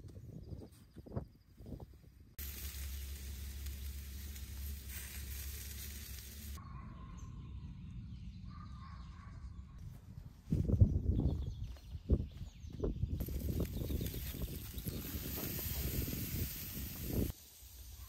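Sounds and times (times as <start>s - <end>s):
meat sizzling on a grill: 2.4s - 6.6s, 13.2s - 18.0s.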